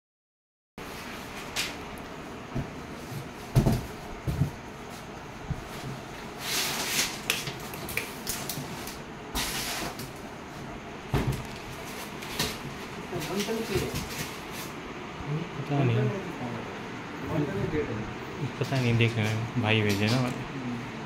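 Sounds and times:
rustling scrapes: 6.4 - 7.2.

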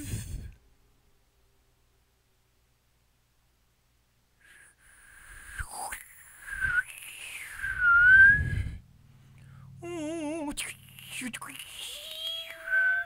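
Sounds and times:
low breathy rumble: 0.0 - 0.6, 4.4 - 11.8
flute breath noise: 4.4 - 9.8
airy whistle-like flute tone: 6.5 - 8.8.

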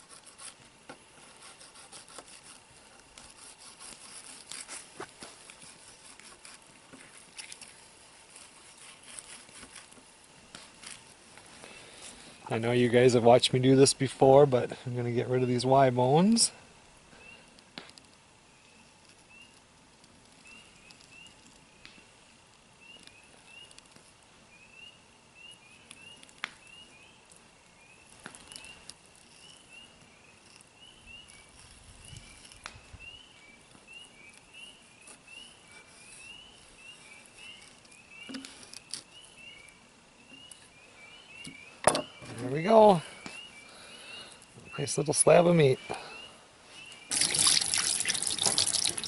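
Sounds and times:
frogs peeping: 24.6 - 49.0.

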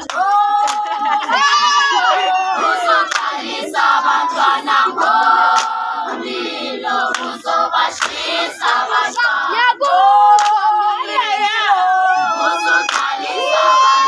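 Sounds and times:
hand claps: 0.0 - 1.4, 3.0 - 3.4, 4.3 - 5.8, 7.1 - 10.6, 12.9 - 13.1
girls singing together: 0.0 - 14.0.

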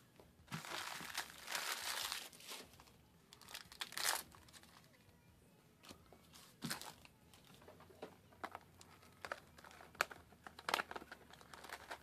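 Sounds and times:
foil wrappers crinkling: 0.5 - 4.9, 8.8 - 12.0.

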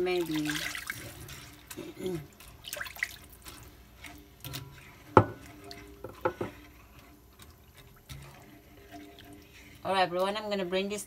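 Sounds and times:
water pouring and splashing: 0.0 - 10.5
sharp knocks on pan: 5.2 - 5.4.

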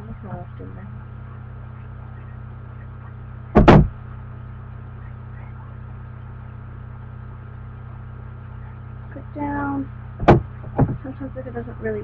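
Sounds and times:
low electrical hum: 0.0 - 12.0
loud double thump: 3.5 - 4.0, 10.2 - 11.1.

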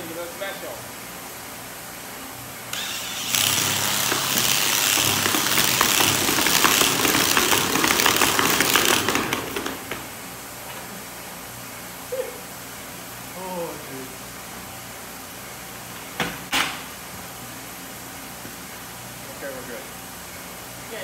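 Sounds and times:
drill wheel grinding on concrete: 2.7 - 10.0.

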